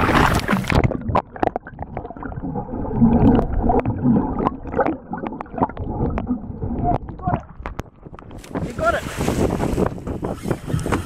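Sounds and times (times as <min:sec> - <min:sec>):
wind: 0:00.0 - 0:01.3, 0:05.8 - 0:11.0
sharp underwater clicks and knocks: 0:00.0 - 0:01.9, 0:03.3 - 0:08.7, 0:09.4 - 0:11.0
water gurgling underwater: 0:00.0 - 0:10.8.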